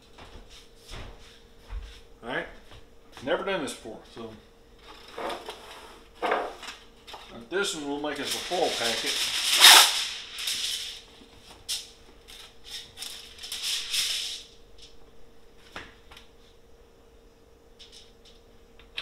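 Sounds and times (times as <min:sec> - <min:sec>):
foil crinkling: 0:08.1 - 0:11.0
aluminium foil tearing: 0:08.2 - 0:11.0, 0:12.6 - 0:14.5.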